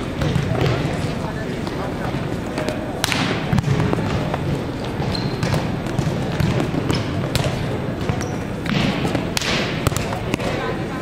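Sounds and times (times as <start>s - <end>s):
volleyballs struck and bouncing: 0.0s - 10.8s.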